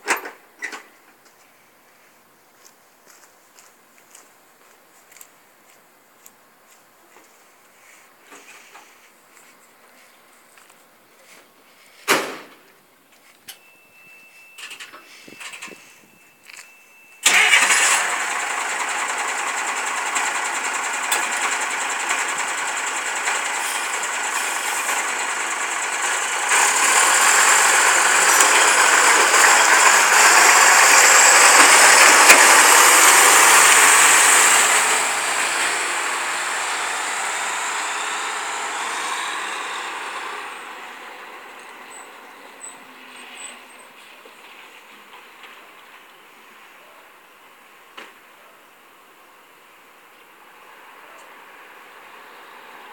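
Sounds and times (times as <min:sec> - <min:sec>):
diesel truck engine running: 0:17.2 - 0:44.7.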